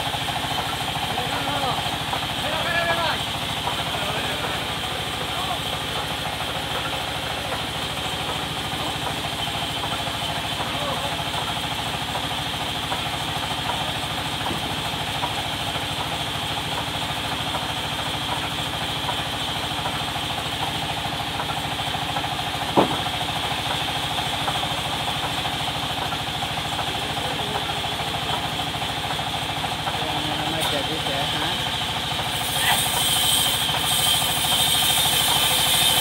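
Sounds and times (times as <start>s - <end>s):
band saw droning and whining: 0.0s - 21.0s, 26.6s - 36.0s
sharp knock: 22.8s - 23.1s.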